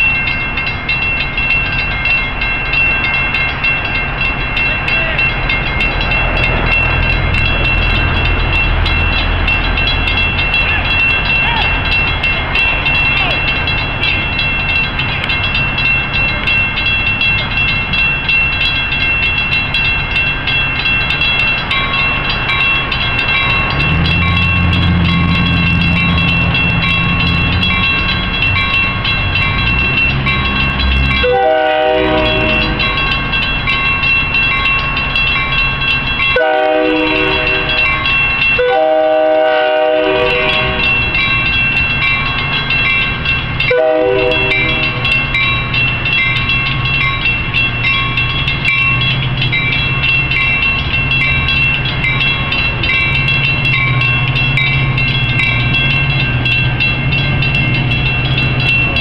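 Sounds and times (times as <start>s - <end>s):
railroad crossing bell ringing: 0.0s - 59.0s
train rumbling: 0.0s - 59.0s
train horn blasts: 31.2s - 32.9s, 36.4s - 37.9s, 38.6s - 41.0s, 43.7s - 45.0s.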